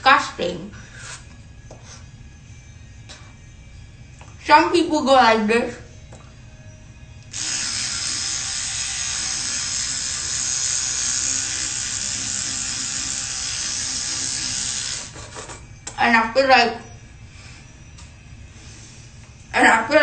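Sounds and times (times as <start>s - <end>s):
electric toothbrush buzzing: 6.5s - 15.9s.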